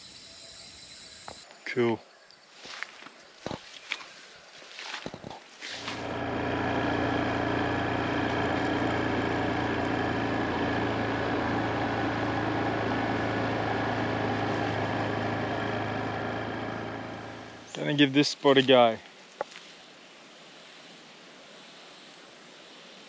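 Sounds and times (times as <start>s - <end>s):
atv engine running: 5.8s - 17.8s.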